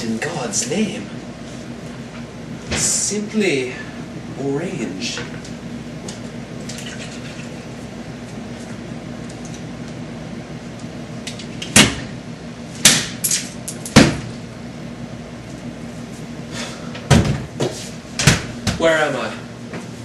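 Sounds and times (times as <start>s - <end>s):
refrigerator hum: 0.0s - 20.0s
refrigerator knocks and clatters: 13.9s - 14.3s, 17.1s - 18.9s.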